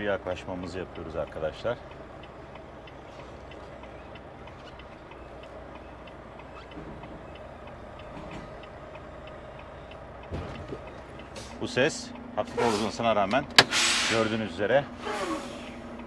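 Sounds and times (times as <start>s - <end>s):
fast regular ticking: 0.0s - 10.3s
truck engine idling: 0.0s - 16.0s.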